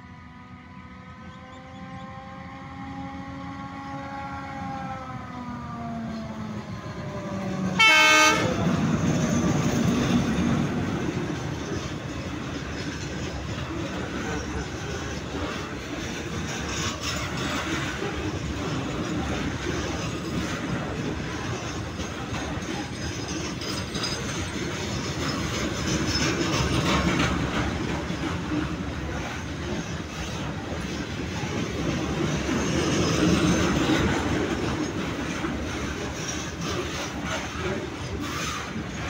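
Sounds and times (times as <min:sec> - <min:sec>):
train wheels rumbling on rails: 0:00.0 - 0:39.0
wagons rattling and clicking: 0:08.7 - 0:39.0.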